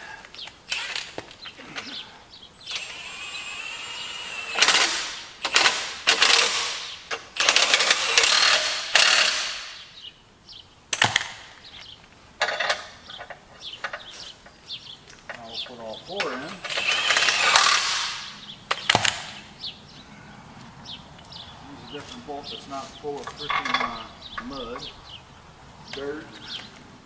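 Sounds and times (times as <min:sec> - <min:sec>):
power wrench bursts: 0:00.7 - 0:02.0, 0:02.6 - 0:09.9, 0:16.2 - 0:19.4.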